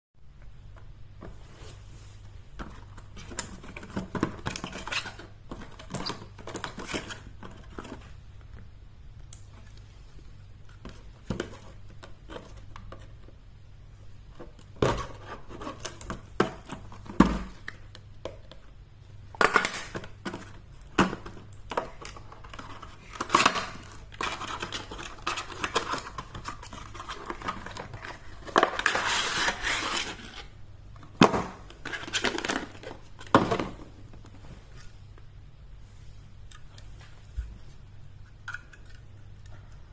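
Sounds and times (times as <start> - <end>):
plastic packaging rustling: 19.6 - 34.8.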